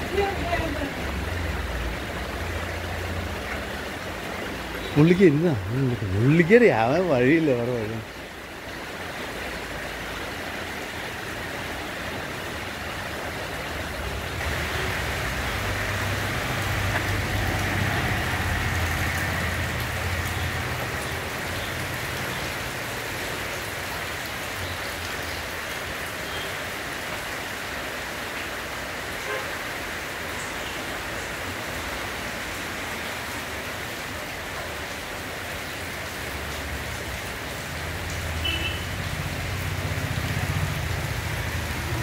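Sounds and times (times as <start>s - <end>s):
rain on metal roof: 0.0s - 42.0s.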